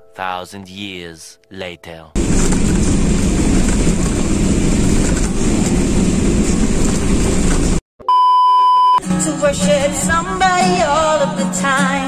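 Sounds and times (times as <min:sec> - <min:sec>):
road and engine noise in van: 0:02.2 - 0:07.8.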